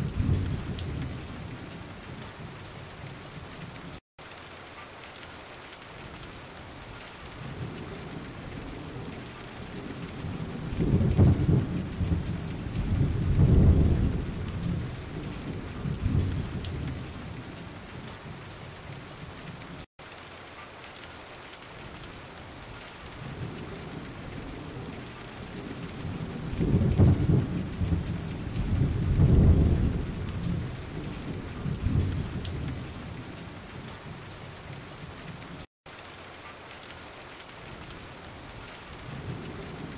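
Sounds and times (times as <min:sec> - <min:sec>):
thunder rumbling: 0:00.0 - 0:04.0, 0:07.4 - 0:19.7, 0:23.2 - 0:35.5
steady rain hiss: 0:00.0 - 0:39.9.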